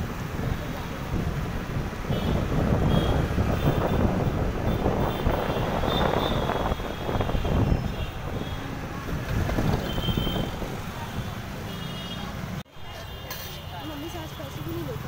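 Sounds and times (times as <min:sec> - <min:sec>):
wind buffeting microphone: 0:00.0 - 0:11.5
street traffic: 0:00.0 - 0:15.0.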